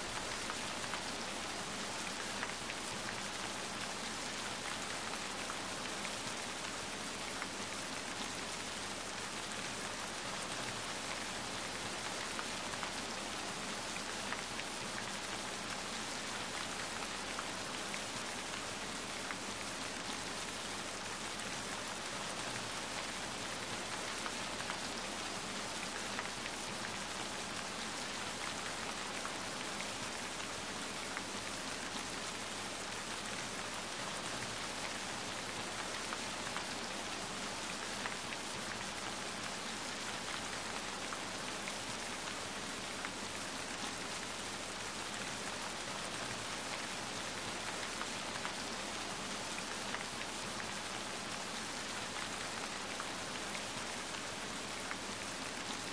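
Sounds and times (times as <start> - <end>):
rain on wet pavement: 0.0 - 55.9.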